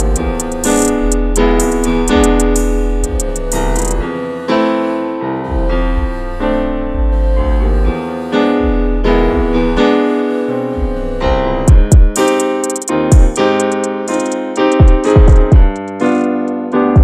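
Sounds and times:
low bass line: 0.0 - 4.1, 5.4 - 10.0, 10.7 - 12.2
electric piano chords: 0.0 - 17.0.

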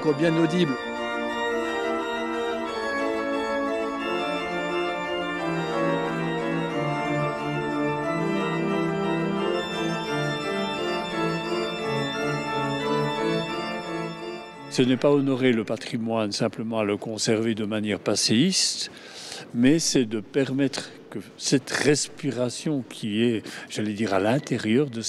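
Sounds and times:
organ playing slow chords: 0.0 - 15.9.

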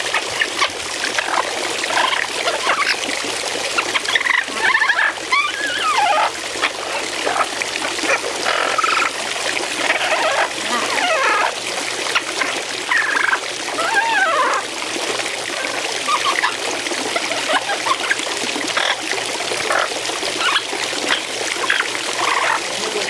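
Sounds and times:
fountain water splashing: 0.0 - 23.0
parrot calls: 3.8 - 7.5, 9.9 - 11.6, 12.9 - 14.6, 19.7 - 22.6.

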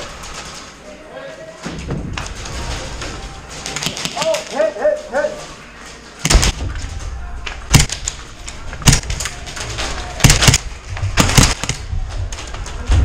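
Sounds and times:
airsoft guns firing: 3.6 - 4.6, 6.2 - 6.6, 7.7 - 8.2, 8.8 - 9.5, 10.2 - 11.9.

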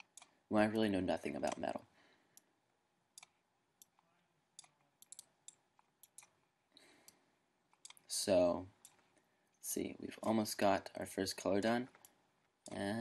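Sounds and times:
faint computer mouse clicks: 3.2 - 6.4.

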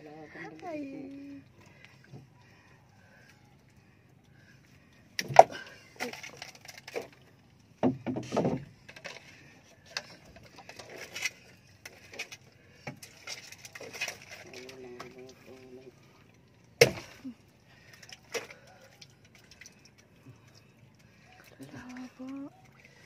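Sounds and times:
knocks on wooden boat: 7.8 - 8.7.

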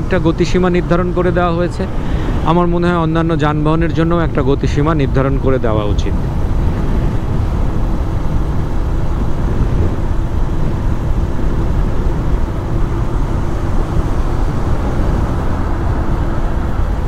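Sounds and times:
road noise: 0.0 - 17.0
wind rush on microphone: 0.0 - 17.0
motorcycle engine: 6.2 - 17.0.

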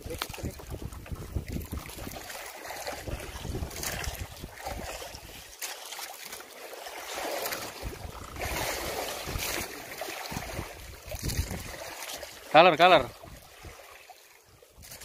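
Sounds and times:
wind buffeting microphone: 0.0 - 5.5, 7.7 - 11.9
sea water sloshing against boat: 0.0 - 15.0.

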